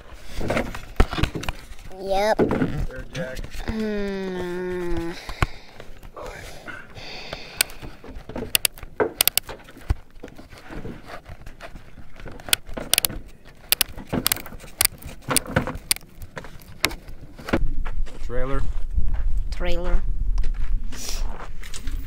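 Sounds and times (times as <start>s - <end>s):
small hard objects clicking: 8.5s - 9.5s, 12.4s - 17.0s.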